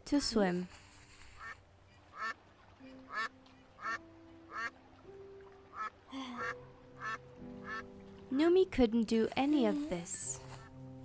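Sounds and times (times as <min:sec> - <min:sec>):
duck quacking: 0:01.4 - 0:02.4, 0:03.1 - 0:04.7, 0:05.8 - 0:07.8.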